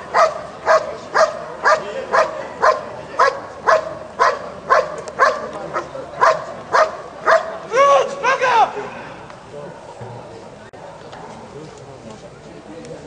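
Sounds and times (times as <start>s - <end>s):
dog barking rhythmically: 0.1s - 5.5s, 6.2s - 7.6s.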